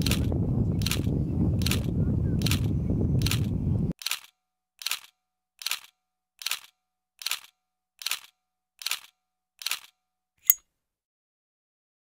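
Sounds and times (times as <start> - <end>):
camera shutter clicks: 2.5 - 9.9.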